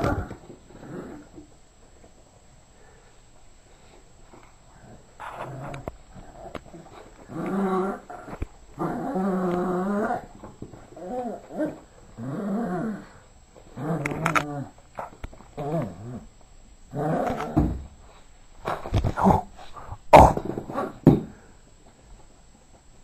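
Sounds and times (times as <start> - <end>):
dog growling in play: 0.0 - 1.4, 4.8 - 16.3, 16.9 - 17.8.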